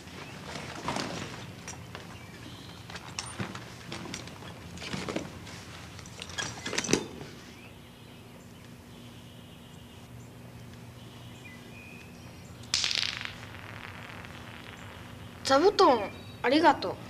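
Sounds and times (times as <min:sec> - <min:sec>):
rustling burst: 0:13.3 - 0:15.6
faint high chirps: 0:13.5 - 0:16.5.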